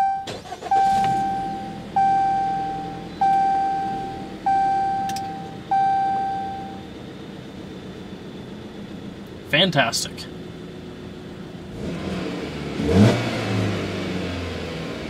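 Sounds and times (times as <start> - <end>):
warning chime ding: 0.0 - 6.8.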